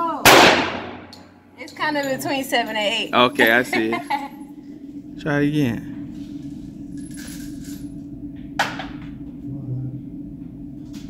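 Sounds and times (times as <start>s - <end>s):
steady low hum: 0.0s - 11.0s
pistol shot: 0.2s - 1.2s.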